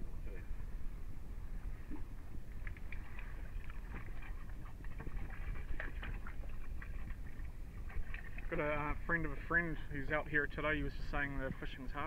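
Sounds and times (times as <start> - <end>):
water slapping against boat hull: 2.6 - 8.8.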